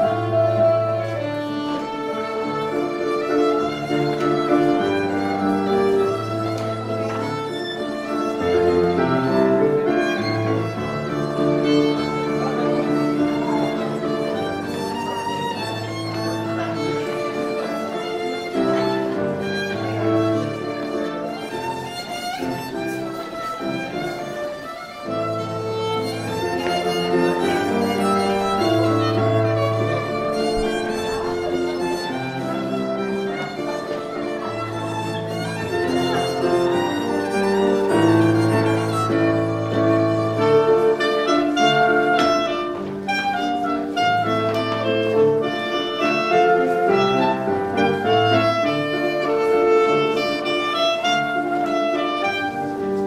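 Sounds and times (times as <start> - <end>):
violin melody: 0.0 - 53.0.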